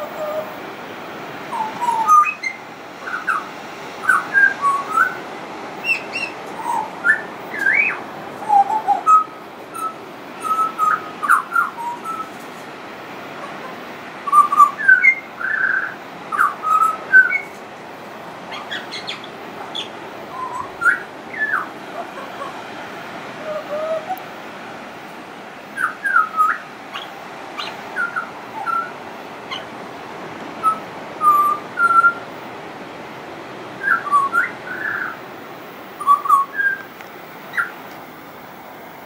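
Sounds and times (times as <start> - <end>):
steady background hiss: 0.0 - 39.0
bird singing fluting whistles: 1.5 - 5.2, 5.8 - 12.4, 14.2 - 17.6, 18.5 - 21.7, 25.8 - 29.7, 30.6 - 32.2, 33.8 - 35.2, 36.0 - 36.9.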